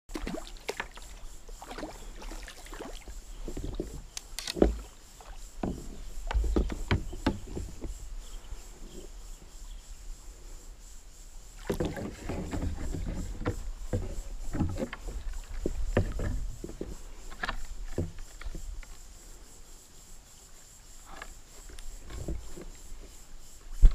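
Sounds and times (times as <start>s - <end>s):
paddle splashing in water: 0.1s - 9.2s, 11.6s - 19.1s.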